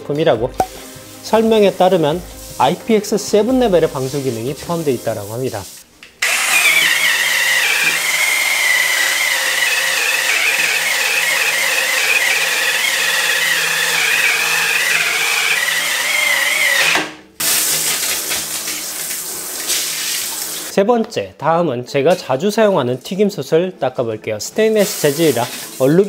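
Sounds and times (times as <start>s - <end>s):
water spraying: 0.5s - 16.7s, 17.4s - 20.7s, 24.6s - 26.0s
power scrubber whirring: 6.2s - 17.1s.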